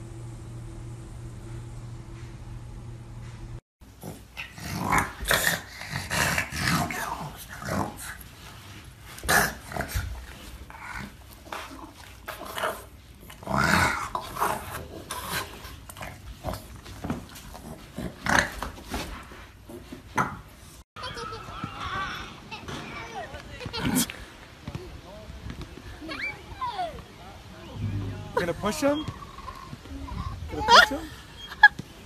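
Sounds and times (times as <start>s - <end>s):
dog growling: 4.0s - 8.2s, 9.2s - 18.6s, 27.8s - 30.7s.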